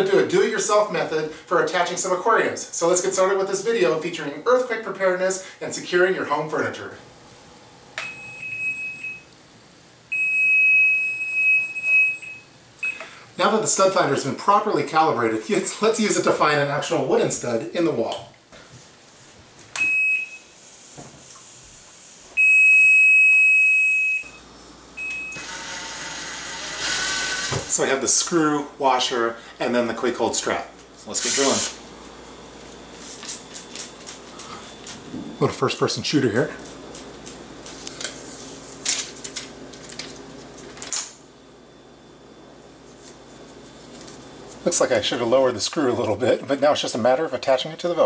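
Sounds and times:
stud finder beeping: 0:08.0 - 0:09.3, 0:22.4 - 0:27.8.

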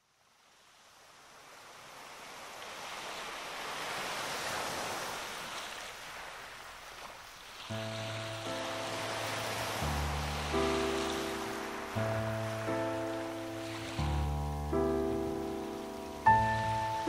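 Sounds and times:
ocean waves washing: 0:00.5 - 0:17.0
music: 0:07.7 - 0:17.0.

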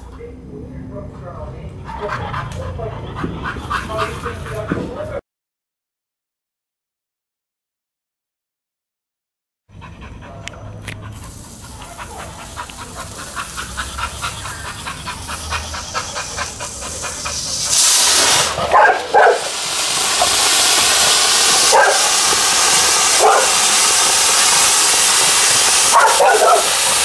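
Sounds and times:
dog panting: 0:01.0 - 0:05.2, 0:09.7 - 0:19.6, 0:21.4 - 0:27.0
firework hissing sparks: 0:11.1 - 0:27.0
dog barking: 0:18.6 - 0:19.5, 0:21.7 - 0:22.1, 0:23.2 - 0:23.6, 0:25.9 - 0:26.8.

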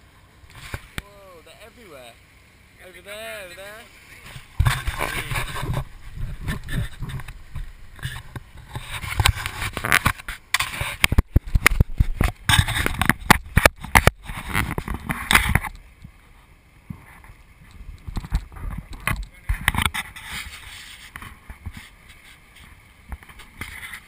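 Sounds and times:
sharp knocks and bumps: 0:04.3 - 0:15.7.

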